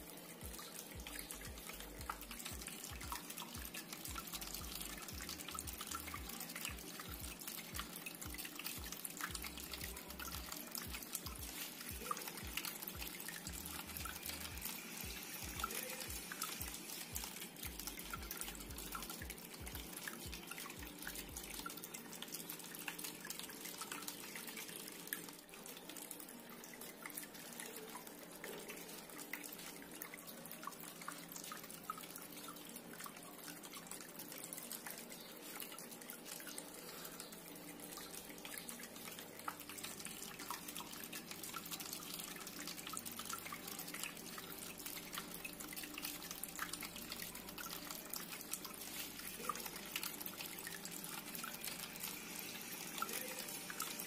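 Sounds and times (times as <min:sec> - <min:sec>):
fountain water trickling and splashing: 0:00.0 - 0:54.0.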